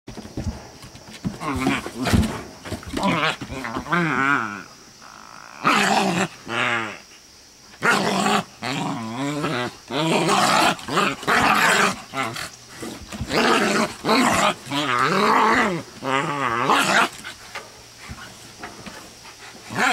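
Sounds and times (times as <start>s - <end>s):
dogs growling: 7.8s - 17.5s.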